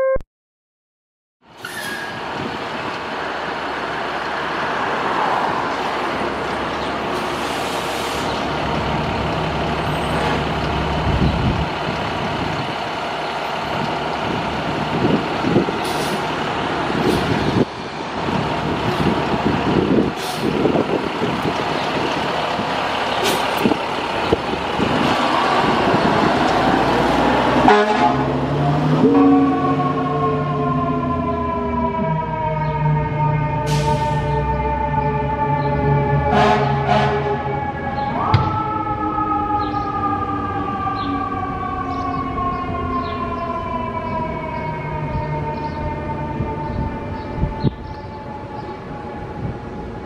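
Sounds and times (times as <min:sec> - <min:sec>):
fire engine diesel running: 0:06.0 - 0:28.2, 0:33.6 - 0:35.1.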